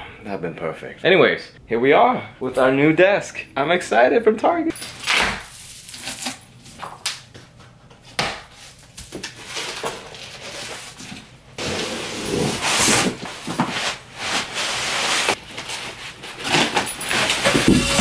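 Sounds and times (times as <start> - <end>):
panels scraping out of box: 16.3 - 18.0
panels knocking and rubbing: 17.1 - 18.0.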